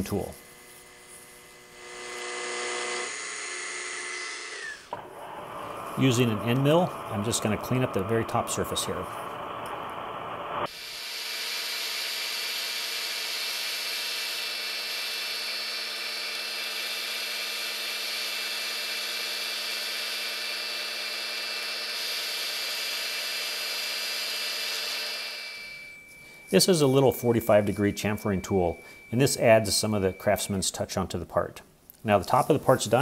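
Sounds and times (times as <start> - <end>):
milling machine cutting metal: 0.0 - 8.0, 10.7 - 30.2.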